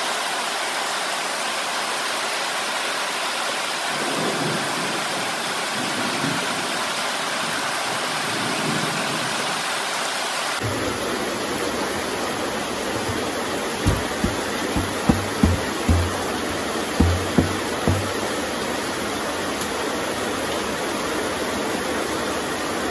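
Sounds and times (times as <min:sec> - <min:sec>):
heavy rain falling: 0:01.8 - 0:22.9
hands patting plastic drum lid: 0:13.0 - 0:18.3.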